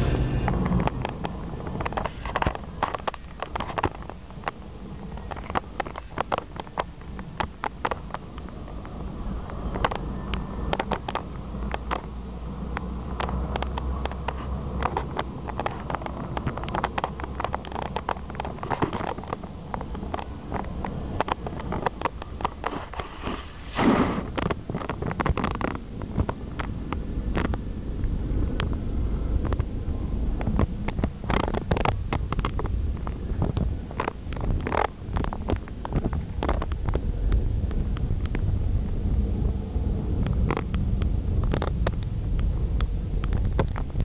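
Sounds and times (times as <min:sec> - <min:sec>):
steady low hum: 0:00.0 - 0:44.0
vehicle running rumble: 0:00.0 - 0:44.0
brief loud rush of noise: 0:22.8 - 0:24.4.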